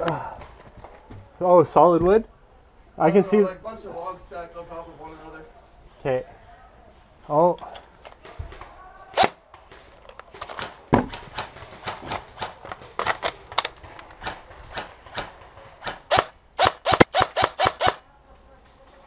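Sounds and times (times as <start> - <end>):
airsoft gun shots: 9.2 - 9.4, 10.5 - 18.0.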